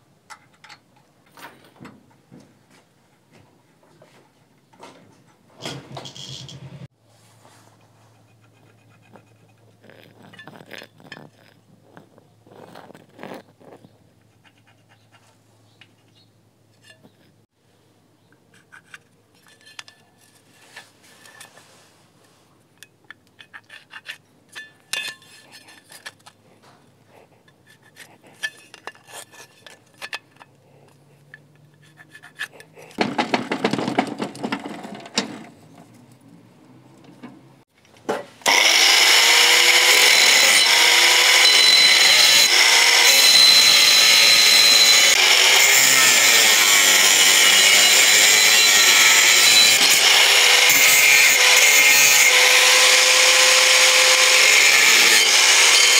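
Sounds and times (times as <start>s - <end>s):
steel pieces clinking: 6.0s - 6.6s, 23.4s - 26.4s
angle grinder cutting steel: 38.4s - 55.9s.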